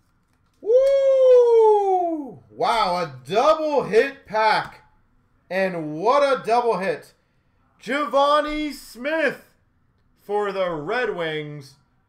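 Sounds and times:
person whooping excitedly: 0.6 - 2.9.

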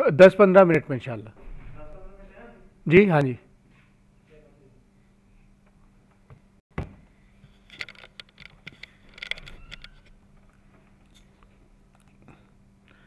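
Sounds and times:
faint steady hum: 0.0 - 13.0
faint clicks and knocks: 7.4 - 12.4.

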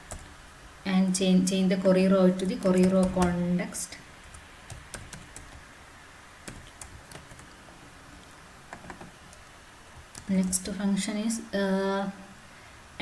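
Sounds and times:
keyboard keystrokes: 4.3 - 5.6, 6.5 - 7.6.

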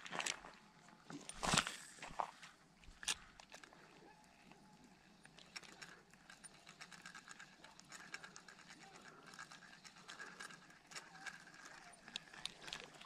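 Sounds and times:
fishing reel clicking and whirring: 2.9 - 13.0.

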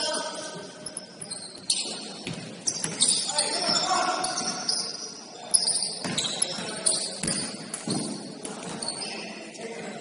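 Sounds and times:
shoe squeaks: 0.0 - 9.4
basketball bouncing on a court: 6.0 - 8.8.

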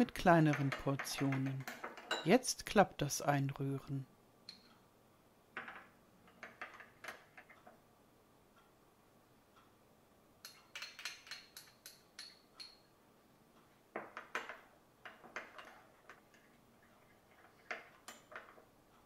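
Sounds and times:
metal spoon clinking glass bowl: 4.5 - 4.7, 10.4 - 12.9.

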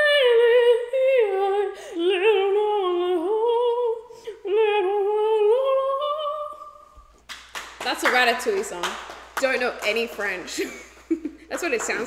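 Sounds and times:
woman singing opera-like: 0.0 - 7.0.

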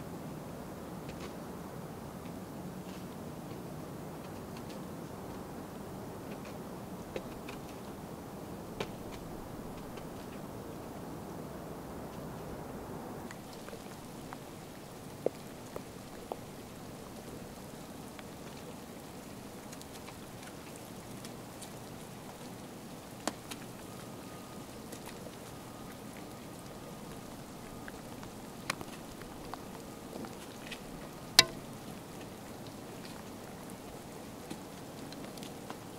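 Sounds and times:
moose feeding crackling hiss: 12.1 - 35.9
twigs snapping: 30.3 - 31.7.

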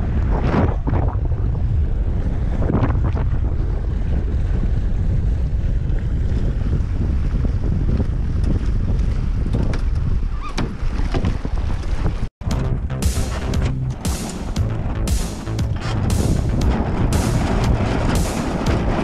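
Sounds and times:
water rushing along hull: 0.0 - 9.4, 13.4 - 19.0
wind buffeting microphone: 0.0 - 13.0, 13.9 - 19.0.

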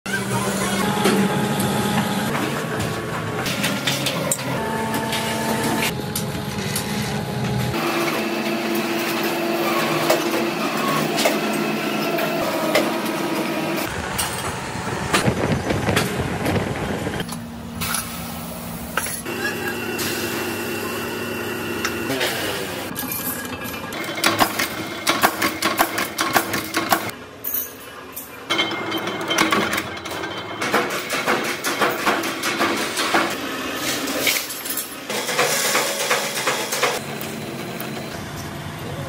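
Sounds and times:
machines humming: 0.1 - 25.7.

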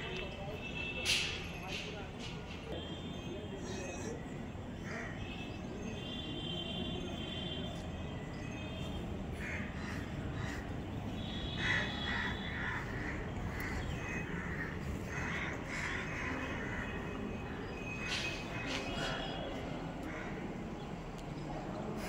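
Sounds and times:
crows cawing: 4.8 - 5.3, 9.4 - 20.8.

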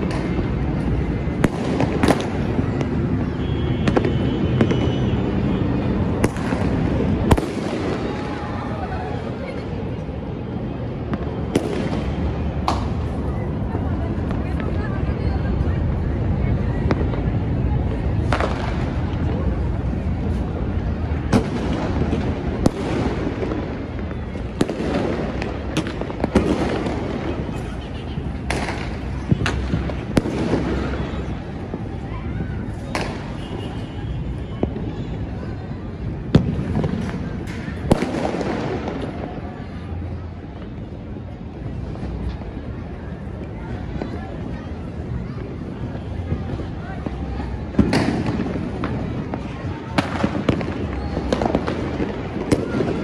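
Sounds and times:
loud firework cracks: 0.0 - 10.0, 10.9 - 13.3, 18.0 - 19.7, 21.2 - 32.0, 32.6 - 33.9, 36.0 - 40.7, 46.2 - 53.0
rumble of distant fireworks: 0.0 - 53.0
sharp firecracker cracks: 11.5 - 13.1, 28.4 - 31.0, 32.8 - 33.5, 47.7 - 48.8.

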